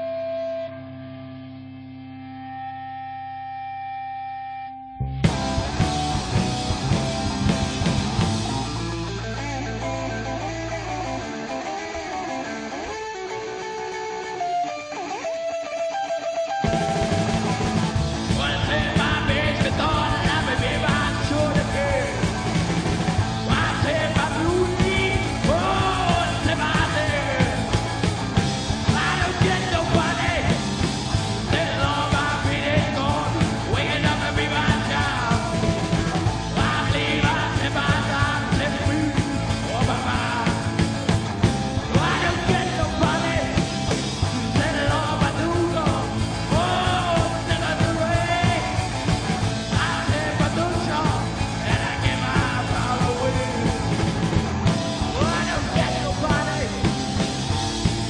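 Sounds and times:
bass guitar: 0.0 - 58.0
electric guitar: 0.0 - 58.0
drums: 5.2 - 58.0
person singing: 18.3 - 22.5, 23.4 - 27.8, 28.9 - 30.7, 31.4 - 40.9, 41.9 - 54.2, 54.8 - 57.0.

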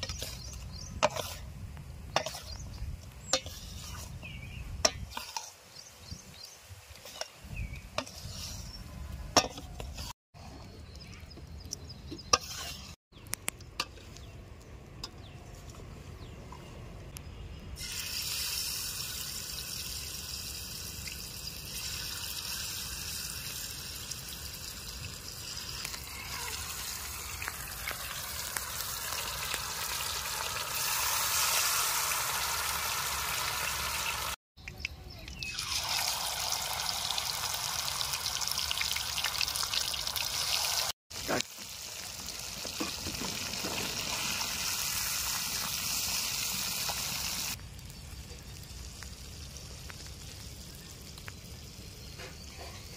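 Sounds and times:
fish sizzling in hot oil: 17.8 - 34.4, 35.6 - 52.5.

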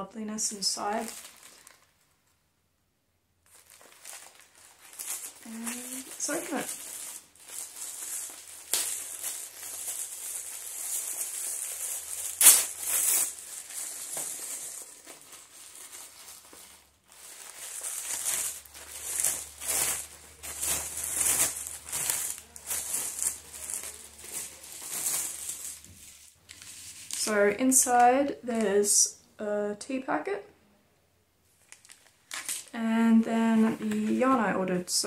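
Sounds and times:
packaging crinkling and rustling: 0.9 - 2.1, 3.4 - 27.3, 31.6 - 32.8
sharp crackle: 3.4 - 25.9.

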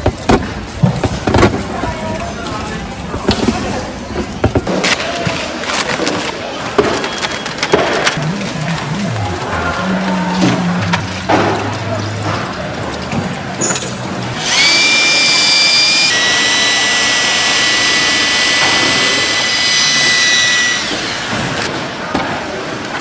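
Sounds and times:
electric drill mixer whining: 14.4 - 21.7.

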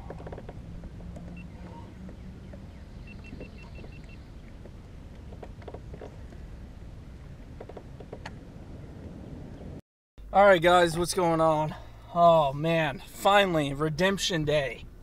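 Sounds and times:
light clicks and knocks: 0.0 - 6.4
low rumble on water: 0.0 - 9.8.

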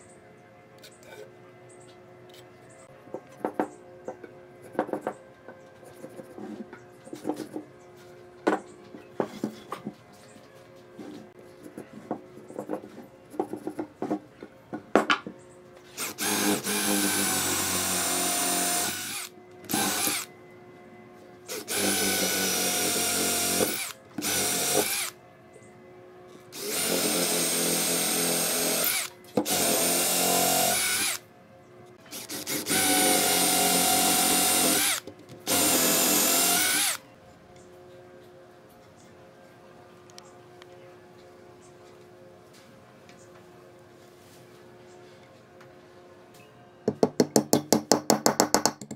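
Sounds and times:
cordless drill boring wood: 16.0 - 20.3, 21.5 - 25.1, 26.6 - 31.2, 32.1 - 37.0.

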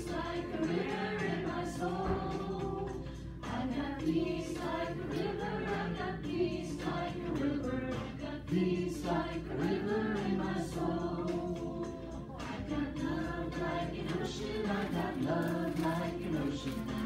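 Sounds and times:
backing music: 0.0 - 17.0
group singing: 0.0 - 17.0.

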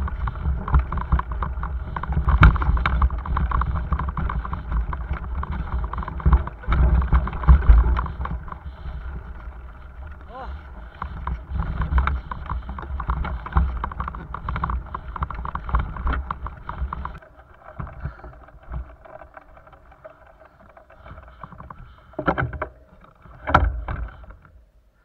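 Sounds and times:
wind rumble on microphone: 0.0 - 19.7
bicycle rattling over grass: 0.0 - 24.5.

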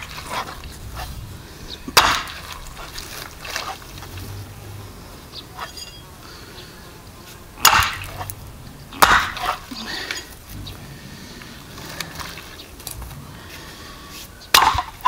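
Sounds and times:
axe chopping on wooden stump: 1.9 - 2.6, 7.6 - 8.3, 9.0 - 9.6, 14.5 - 15.0.

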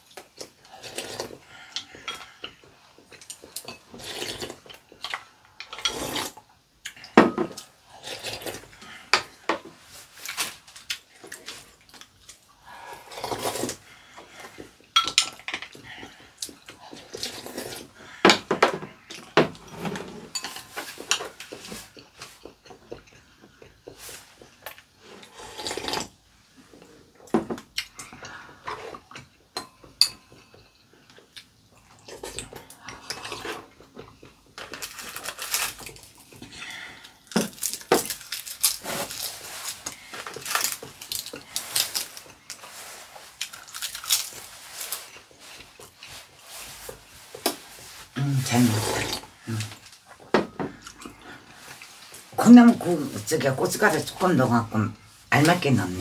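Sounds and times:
utensils clinking on ceramic bowls: 15.0 - 15.8, 20.2 - 21.3, 29.5 - 30.9.

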